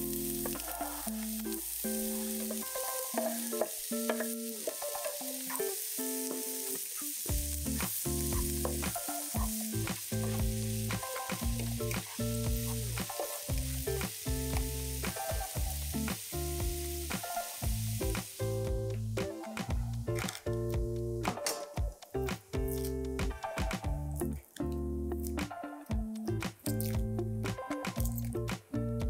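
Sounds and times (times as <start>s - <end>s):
food sizzling in oil: 0.0s - 21.2s
background music with bass: 7.3s - 29.0s.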